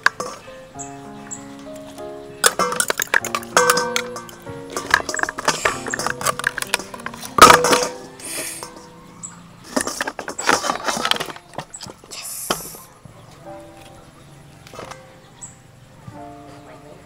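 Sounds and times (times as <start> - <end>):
kitchenware clinking and scraping: 0.0 - 0.5, 1.8 - 12.9, 14.6 - 15.0
kitchenware knock: 2.4 - 8.9.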